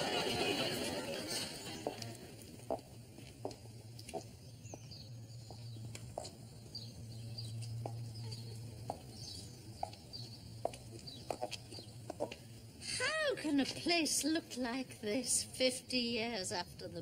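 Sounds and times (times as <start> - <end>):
birds chirping: 1.1 - 12.8.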